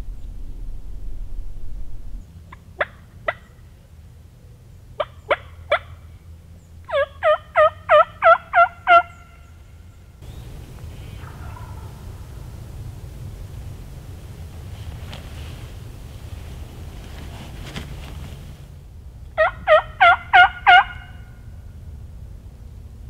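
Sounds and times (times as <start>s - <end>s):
wind hush: 0.0s - 3.2s, 9.4s - 23.0s
turkey call clucks: 2.5s - 3.6s, 5.0s - 6.0s, 6.9s - 9.6s, 11.0s - 12.0s, 19.4s - 21.4s
turkey call hen yelps: 5.0s - 6.0s, 6.9s - 9.5s, 11.0s - 12.0s, 19.4s - 21.4s.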